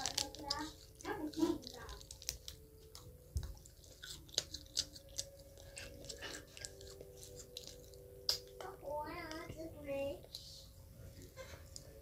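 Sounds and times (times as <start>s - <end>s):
person chewing fries: 0.0s - 9.5s.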